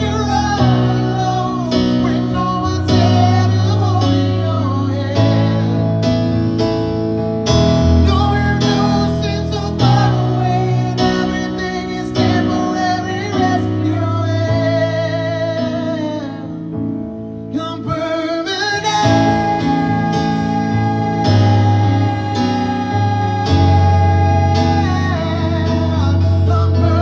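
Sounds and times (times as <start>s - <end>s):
man singing: 0.0s - 6.3s, 7.8s - 16.6s, 17.5s - 27.0s.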